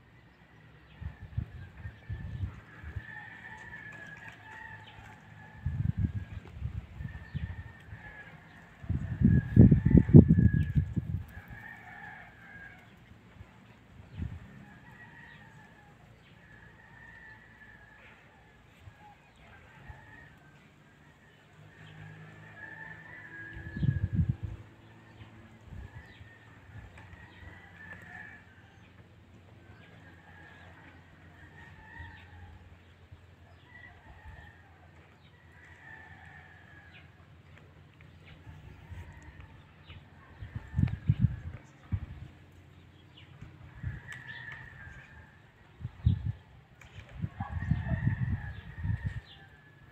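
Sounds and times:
wind buffeting microphone: 0.9 - 11.9, 13.4 - 14.6, 23.4 - 27.7, 38.2 - 49.5.

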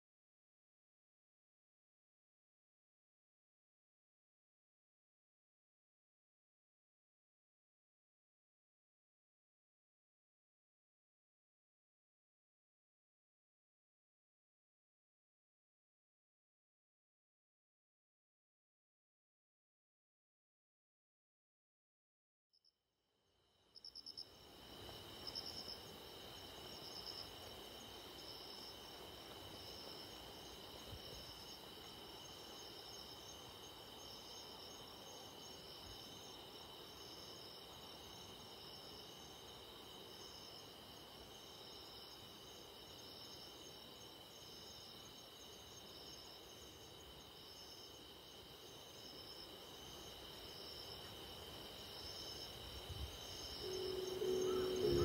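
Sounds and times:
pulsing insect chirp: 23.4 - 55.0
insects trilling: 23.7 - 55.0.

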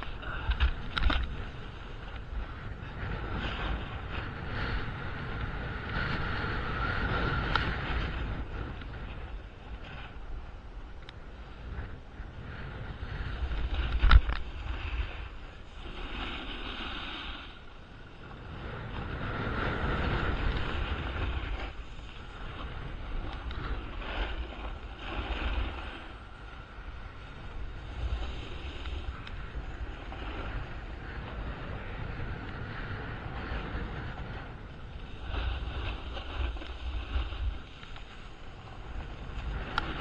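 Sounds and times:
wind buffeting microphone: 0.0 - 40.0
skis scraping packed snow: 12.3 - 40.0.

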